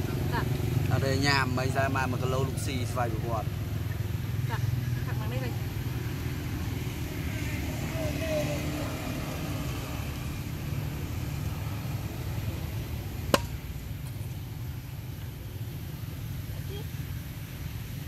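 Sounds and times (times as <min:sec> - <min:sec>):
faint distant voices: 0:00.0 - 0:10.3
low outdoor background rumble: 0:00.0 - 0:18.0.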